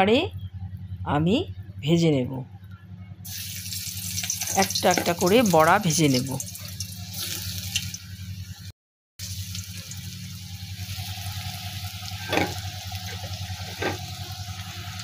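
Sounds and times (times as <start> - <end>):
fritters sizzling in hot oil: 3.3 - 15.0.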